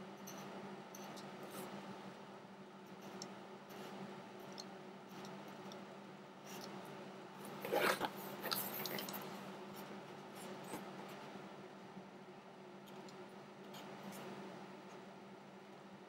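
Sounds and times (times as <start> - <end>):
steady low hum: 0.0 - 16.0
soldering iron ticks and scratching: 0.1 - 1.8, 2.8 - 7.6.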